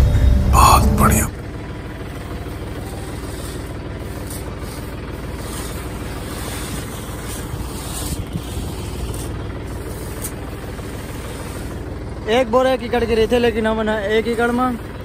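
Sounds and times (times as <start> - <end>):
tractor diesel engine idling: 0.0 - 15.0.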